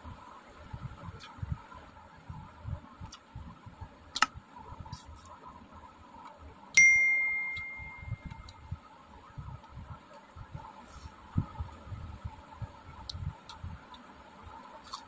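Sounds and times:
bell ding: 6.8s - 8.3s.

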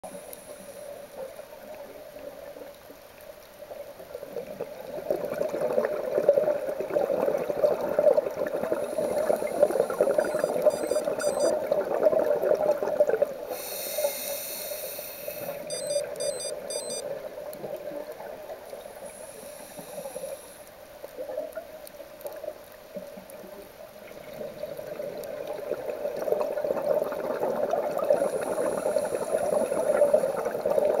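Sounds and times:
regulator bubbles gurgling underwater: 1.1s - 13.7s, 15.4s - 31.0s
higher hiss: 13.5s - 15.7s, 19.1s - 20.7s.

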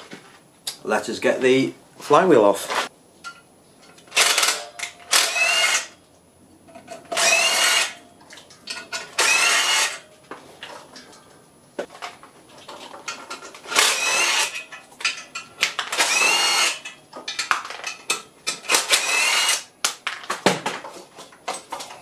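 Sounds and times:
power tool whining: 5.1s - 6.0s, 7.1s - 8.0s, 9.2s - 10.0s, 13.7s - 14.6s, 15.8s - 16.9s, 18.6s - 19.7s
metal parts clinking: 6.7s - 11.4s, 12.0s - 19.1s.

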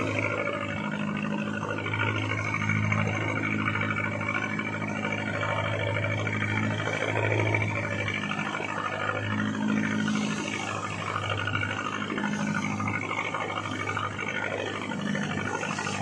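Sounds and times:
boat engine humming: 0.0s - 16.0s
wind: 0.0s - 16.0s.

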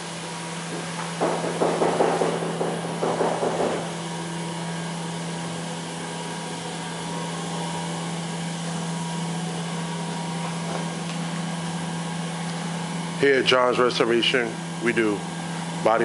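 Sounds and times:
machine humming and whirring: 0.0s - 16.0s.

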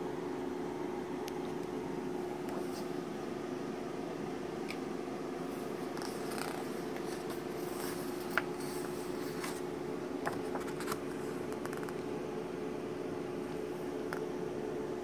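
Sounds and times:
steady low hum: 0.0s - 15.0s
paper pages rustling: 5.6s - 12.0s
sharp paper ticks: 6.0s - 9.6s, 10.3s - 12.0s.

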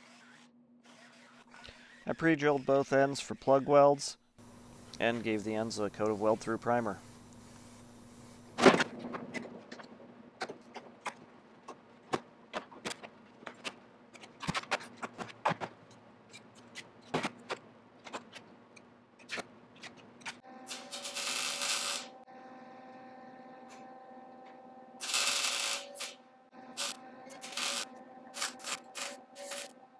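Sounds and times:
welder humming: 4.4s - 8.6s, 20.4s - 29.9s
welder arc: 20.6s - 22.3s, 25.0s - 29.8s.

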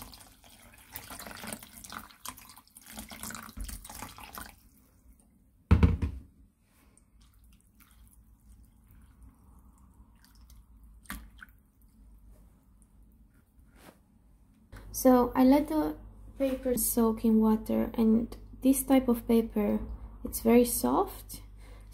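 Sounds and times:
tap water pouring into bowl: 0.0s - 4.8s
water splash and thump: 1.0s - 4.5s.

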